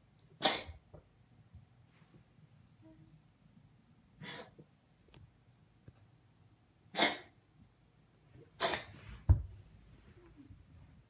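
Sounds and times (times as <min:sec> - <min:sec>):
cat coughing: 0:00.4 - 0:00.8, 0:06.9 - 0:07.4, 0:08.6 - 0:09.0.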